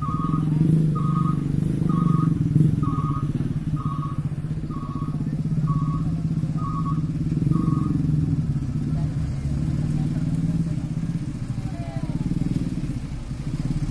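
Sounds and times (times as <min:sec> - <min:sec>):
reversing alarm beeping: 0:00.0 - 0:08.1
diesel engine rumbling: 0:00.0 - 0:13.9.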